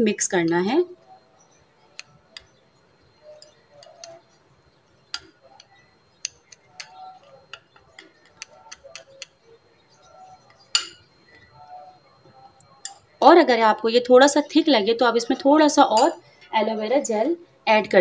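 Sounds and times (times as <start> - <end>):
spoon clinking on glass: 10.7 - 11.1, 15.2 - 16.2.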